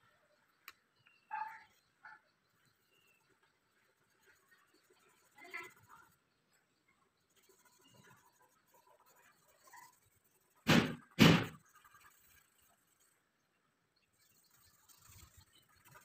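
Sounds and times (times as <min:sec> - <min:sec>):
loud thuds: 0:10.7 - 0:11.6.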